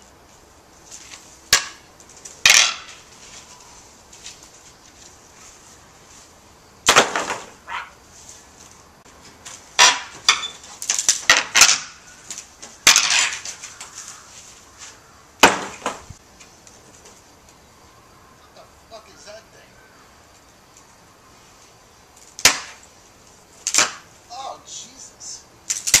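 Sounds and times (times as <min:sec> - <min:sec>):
wood cracking: 0:09.2 - 0:14.3, 0:22.2 - 0:22.9, 0:23.6 - 0:24.1, 0:25.7 - 0:26.0.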